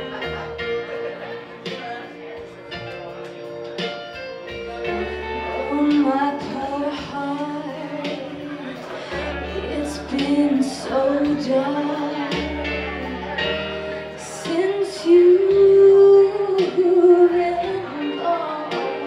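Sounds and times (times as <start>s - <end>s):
backing track with bass line: 0.0s - 19.0s
woman singing karaoke: 4.8s - 19.0s.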